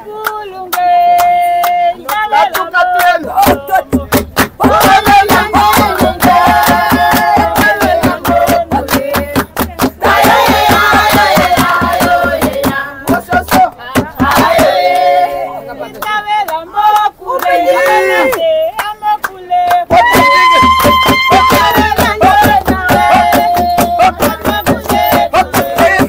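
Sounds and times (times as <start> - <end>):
group of people singing: 0.0 - 26.0
rhythmic hand clapping: 0.1 - 26.0.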